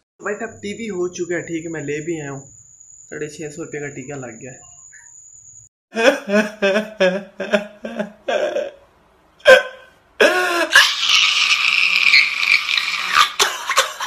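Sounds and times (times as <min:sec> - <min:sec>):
man sobbing and wailing: 0:05.9 - 0:08.8, 0:09.4 - 0:11.2.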